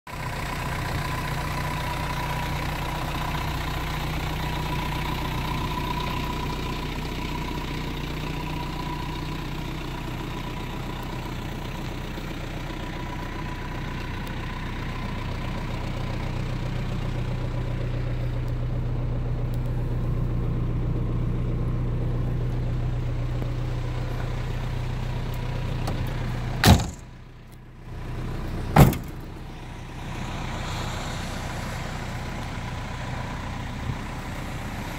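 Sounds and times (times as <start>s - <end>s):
diesel engine idling: 0.1s - 34.9s
vehicle doors banging shut: 26.6s - 27.1s, 28.7s - 29.3s.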